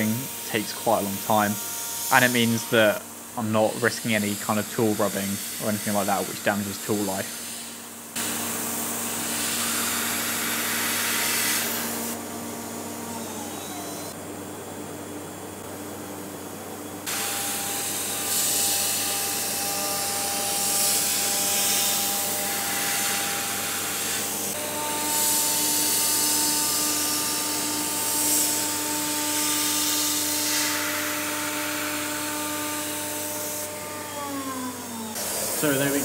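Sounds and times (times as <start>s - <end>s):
router spindle whining: 9.2s - 14.2s, 30.7s - 36.0s.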